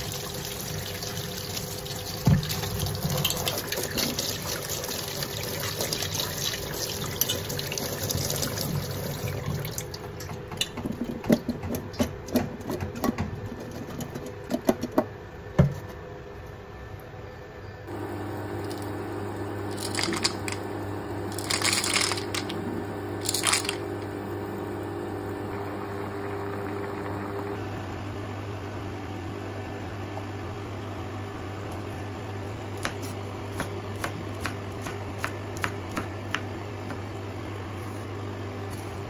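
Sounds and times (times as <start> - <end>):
water boiling in a pot: 0.0 - 10.2
low hum: 17.8 - 28.7
knife chopping on wooden board: 32.8 - 37.0.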